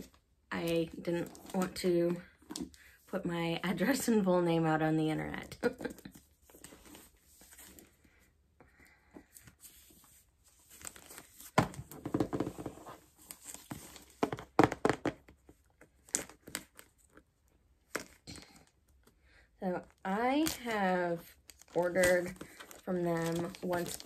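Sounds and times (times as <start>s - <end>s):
wrapping paper crinkling and ripping: 21.4s - 24.0s.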